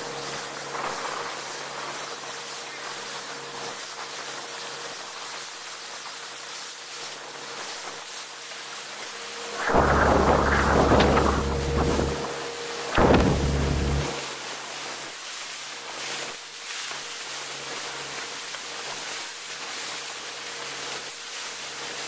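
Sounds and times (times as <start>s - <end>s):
rushing water and spray: 0.1s - 22.0s
faint boat engine drone: 9.0s - 14.6s
wind buffeting microphone: 9.6s - 12.4s.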